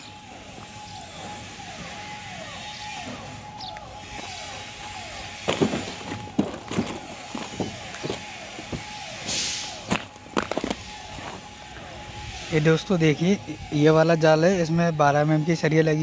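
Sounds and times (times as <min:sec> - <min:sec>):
footsteps on gravel: 0:00.0 - 0:12.6
concrete mixer whining: 0:00.0 - 0:16.0
short hiss: 0:09.3 - 0:09.8.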